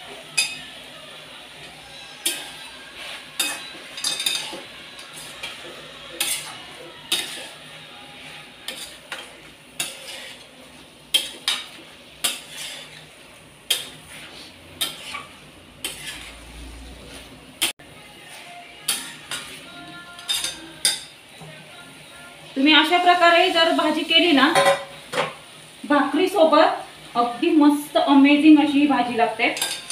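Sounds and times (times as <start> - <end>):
spatula scraping metal pan: 2.1 - 17.7, 29.5 - 29.9.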